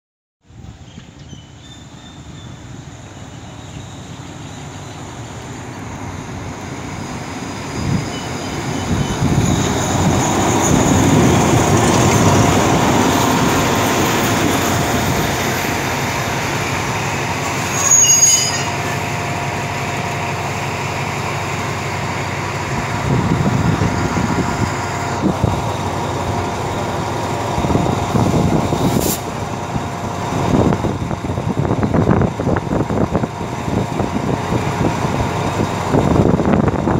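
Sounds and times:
passenger train pulling into station: 0.4 - 36.9
high-pitched brake squeal: 0.9 - 5.0, 7.7 - 11.6, 17.4 - 19.1.

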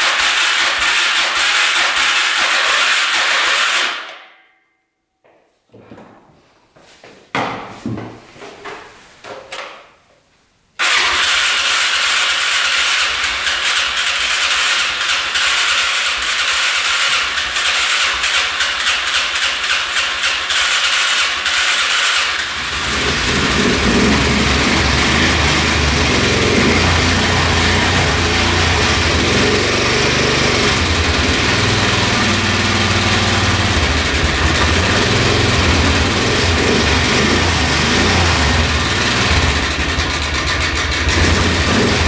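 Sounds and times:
engine cranking on starter: 10.8 - 42.0
engine running rumble: 22.4 - 42.0.

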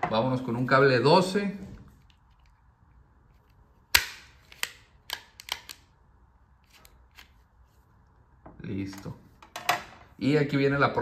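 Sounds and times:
wire stripper snapping: 3.9 - 5.8.

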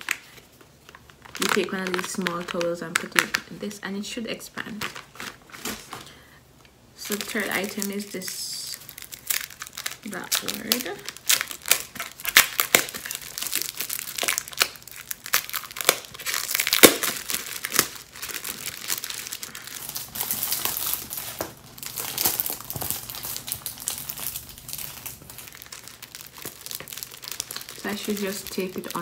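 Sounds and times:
plastic packaging crinkling: 0.0 - 3.6, 4.6 - 6.2, 7.0 - 29.0.

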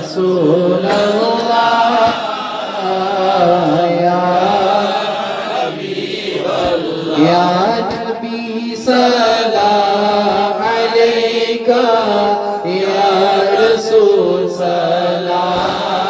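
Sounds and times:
amplified man reciting: 0.0 - 16.0
men chanting: 0.0 - 16.0.

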